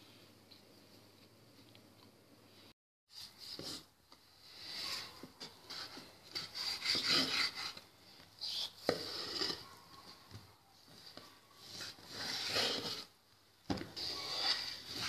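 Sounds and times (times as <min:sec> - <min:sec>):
knife sawing through pork fat: 0:06.4 - 0:07.8.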